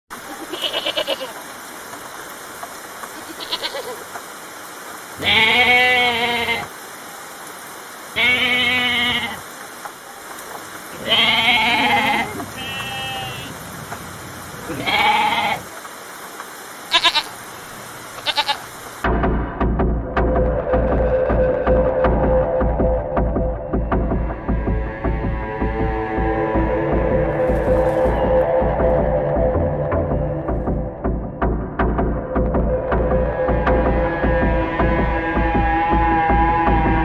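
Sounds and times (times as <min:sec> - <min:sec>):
background hiss: 0:00.1 - 0:19.1, 0:20.2 - 0:36.8
goat bleating: 0:00.3 - 0:01.4, 0:03.2 - 0:04.0, 0:05.2 - 0:06.7, 0:08.2 - 0:09.4, 0:10.9 - 0:13.5, 0:14.7 - 0:15.6, 0:16.9 - 0:17.4, 0:18.2 - 0:18.6.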